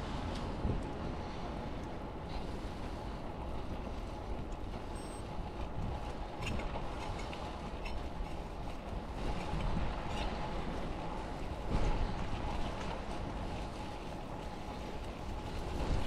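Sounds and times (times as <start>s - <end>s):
wind rush on microphone: 0.0s - 16.0s.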